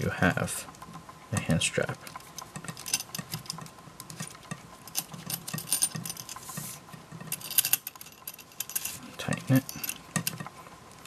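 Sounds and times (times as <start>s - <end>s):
metal strap buckle clinking: 2.1s - 6.4s, 7.2s - 10.4s.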